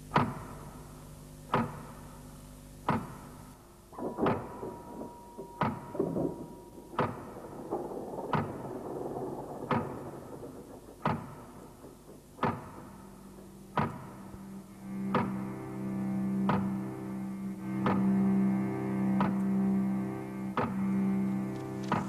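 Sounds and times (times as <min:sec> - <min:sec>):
low hum: 0:00.0 - 0:22.0
sharp knock: 0:04.0 - 0:14.2.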